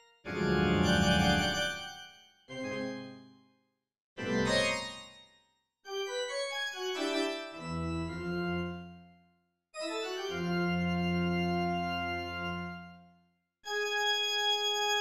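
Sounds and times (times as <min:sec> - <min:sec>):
organ chords: 0:00.3 - 0:01.7, 0:10.3 - 0:12.8.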